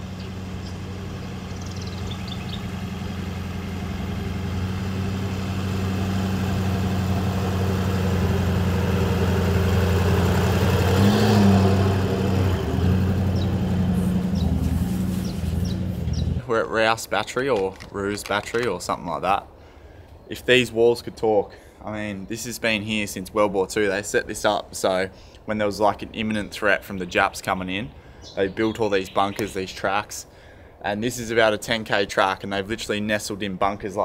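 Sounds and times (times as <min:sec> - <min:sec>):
vehicle engine driving on sand: 0:00.0 - 0:16.5.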